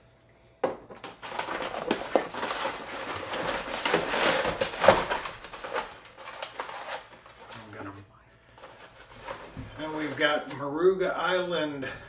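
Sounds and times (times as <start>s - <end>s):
packing material rustling: 1.0s - 7.9s, 8.5s - 10.7s.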